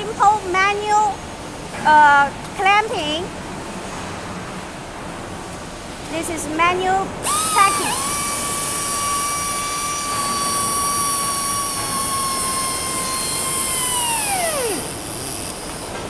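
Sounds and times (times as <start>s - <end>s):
air motor whining: 7.2s - 16.0s
exhaust air hissing: 7.2s - 16.0s.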